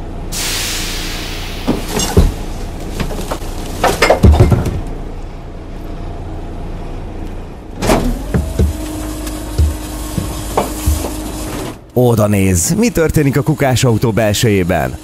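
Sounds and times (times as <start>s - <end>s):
garbage truck engine running: 0.0s - 15.0s
bins clattering into truck: 1.6s - 5.0s
mechanical whine: 4.8s - 15.0s.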